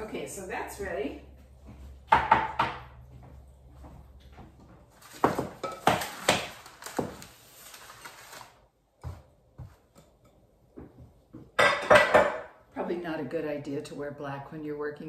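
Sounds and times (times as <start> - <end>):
bowls knocked on stone countertop: 11.6 - 12.5.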